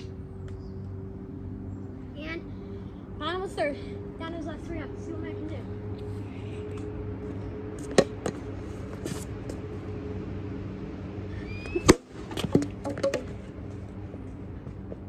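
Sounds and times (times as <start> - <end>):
steady low hum: 0.0 - 15.0
bat cracking ball: 11.7 - 13.4.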